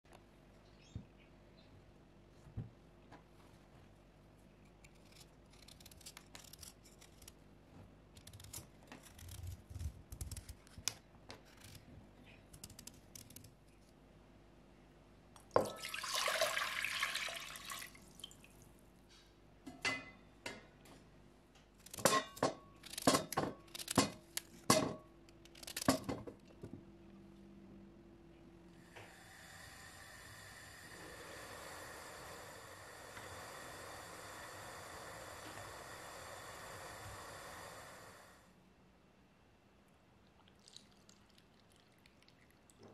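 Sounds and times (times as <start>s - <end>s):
water pouring into a pot: 15.6s - 18.6s, 40.6s - 42.9s
steady hiss: 28.8s - 38.6s.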